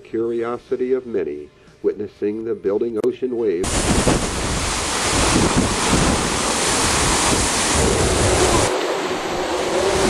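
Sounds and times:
storm waves breaking: 3.6 - 10.0
wind buffeting microphone: 3.6 - 10.0.

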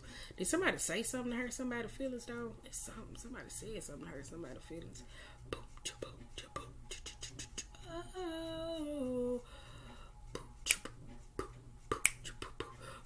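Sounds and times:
woman humming a tune: 5.6 - 9.5, 12.0 - 12.9.

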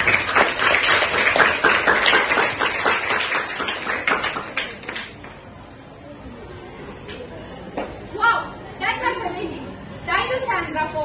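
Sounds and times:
students clapping: 0.0 - 5.4.

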